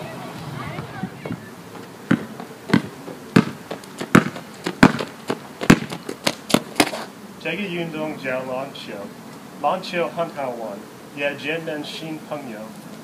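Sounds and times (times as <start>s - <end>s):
basketball bouncing on asphalt: 0.7s - 7.1s.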